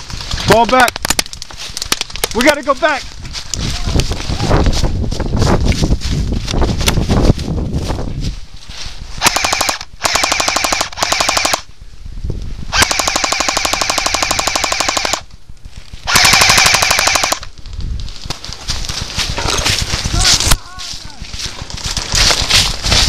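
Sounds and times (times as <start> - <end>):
rustling through dry leaves: 0.0 - 0.6, 1.3 - 9.2, 17.4 - 23.0
airsoft rifle firing bursts: 9.2 - 11.7, 12.7 - 15.3, 16.0 - 17.5.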